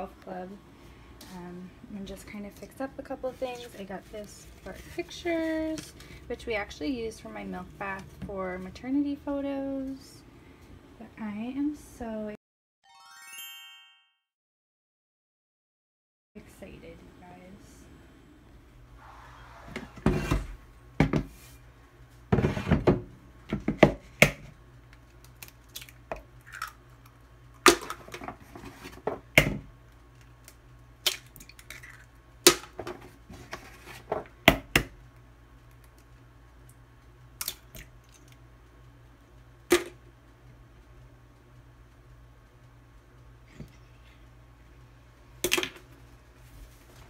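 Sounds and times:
eggs cracking against bowl: 24.9s - 28.1s, 30.2s - 32.7s, 37.4s - 38.4s.

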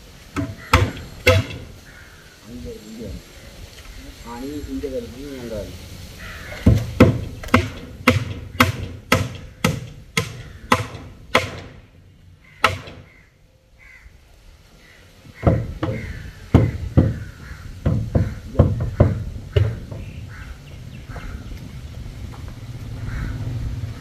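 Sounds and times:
hammer striking wooden boards: 0.3s - 1.8s, 6.6s - 11.9s, 12.6s - 13.1s, 15.3s - 20.2s.

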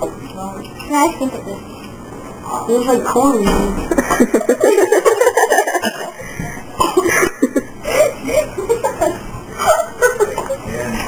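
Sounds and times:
children laughing: 3.9s - 10.7s.

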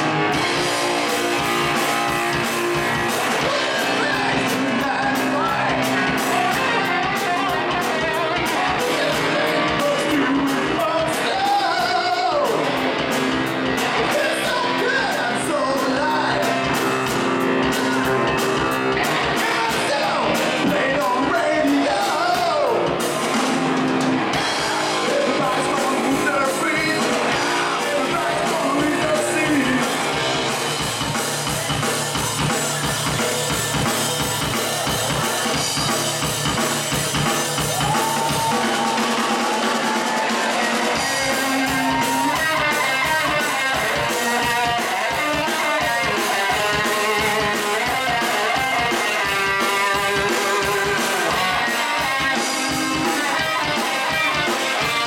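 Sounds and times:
bass guitar: 0.0s - 55.0s
drums: 0.0s - 55.0s
electric guitars: 0.0s - 55.0s
man singing lead vocal: 3.3s - 23.1s, 24.4s - 30.6s, 40.2s - 55.0s.

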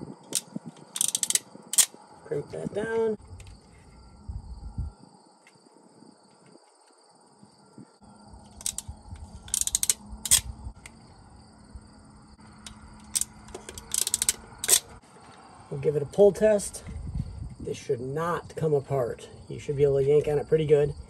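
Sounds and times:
wire crimper clicking: 0.3s - 2.0s, 8.5s - 11.0s, 12.7s - 14.9s
faint high whine: 1.6s - 13.5s.

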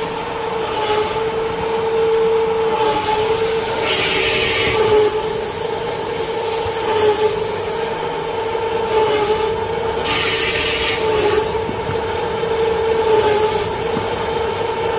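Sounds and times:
saw machine humming: 0.0s - 14.9s
saw blade cutting paper: 2.7s - 8.0s, 8.9s - 11.7s, 12.9s - 14.3s.

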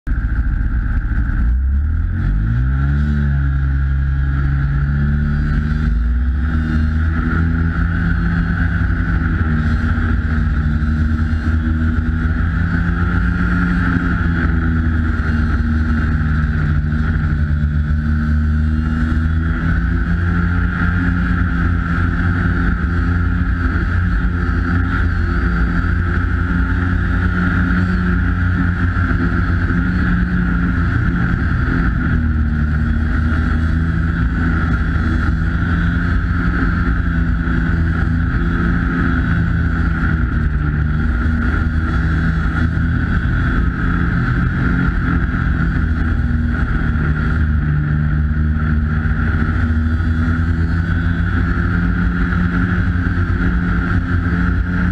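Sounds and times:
snowmobile engine running: 0.0s - 54.9s.

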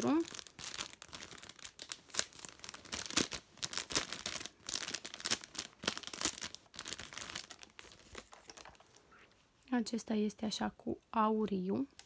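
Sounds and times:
packaging rustling and crinkling: 0.0s - 9.2s.

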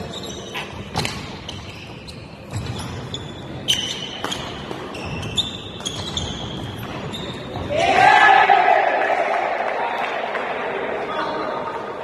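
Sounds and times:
shoes squeaking on court floor: 0.0s - 7.8s.

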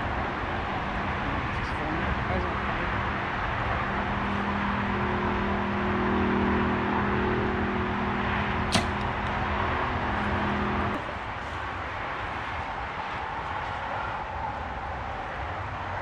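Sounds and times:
bow string snap: 8.7s - 9.4s.

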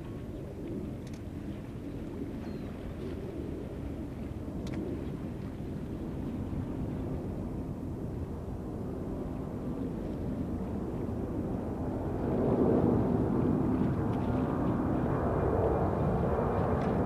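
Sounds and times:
jet engines low rumble: 0.0s - 17.0s.

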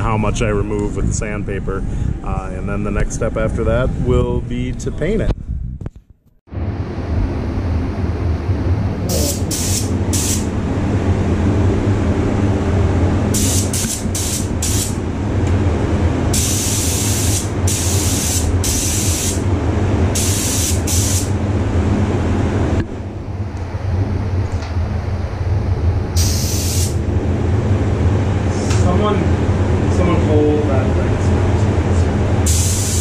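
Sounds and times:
steady low hum: 0.0s - 33.0s
spray gun hissing: 9.1s - 10.5s, 13.3s - 15.0s, 16.3s - 19.4s, 20.2s - 21.3s, 26.2s - 27.0s, 32.5s - 33.0s.

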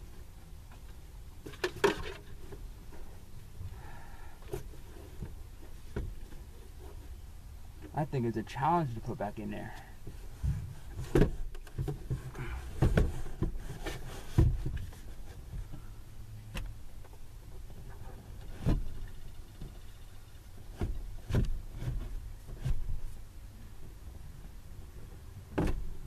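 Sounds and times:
knocks and thumps: 10.4s - 15.7s, 25.5s - 25.9s.

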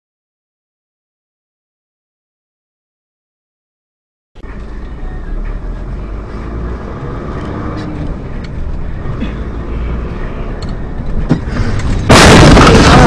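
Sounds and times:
car engine and road noise: 4.4s - 13.0s.

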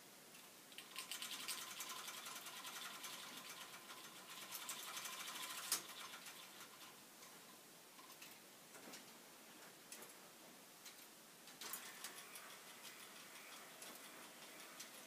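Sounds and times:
plastic gear train clicking: 0.7s - 7.0s, 11.6s - 15.0s.

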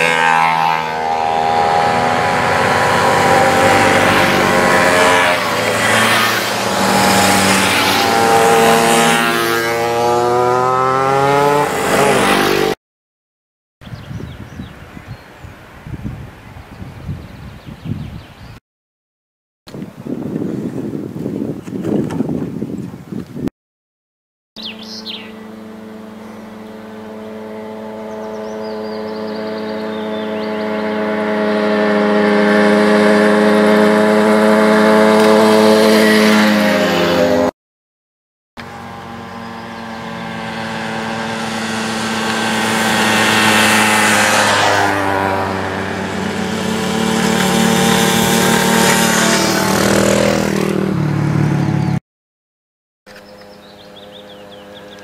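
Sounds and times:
mopeds riding past: 0.0s - 12.8s, 24.6s - 37.5s, 38.6s - 52.0s, 53.5s - 55.0s.

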